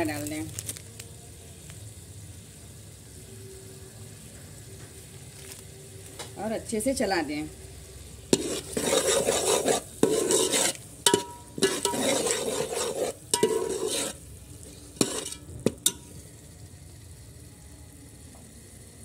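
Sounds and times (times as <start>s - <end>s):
faint sizzle of frying: 0.0s - 19.0s
metal spoon scraping a pot: 8.2s - 16.2s
spoon clinking against pot: 8.4s - 14.2s, 15.0s - 16.1s.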